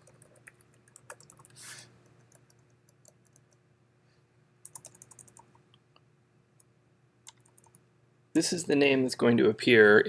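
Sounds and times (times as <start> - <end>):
faint steady hum: 0.0 - 10.0
keyboard keystrokes: 4.7 - 5.5.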